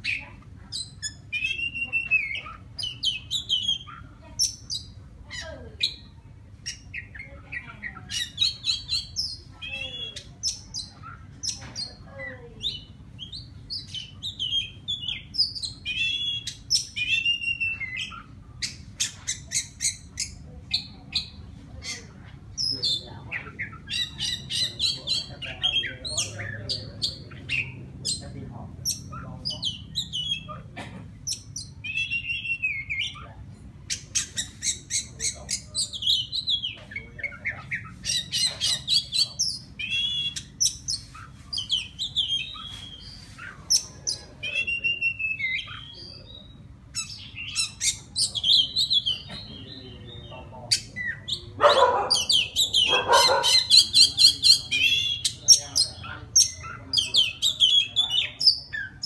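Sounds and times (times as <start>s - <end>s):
bird singing whistled phrases: 0.8s - 4.9s, 12.6s - 20.4s, 31.3s - 33.2s, 33.9s - 43.5s, 44.1s - 50.3s.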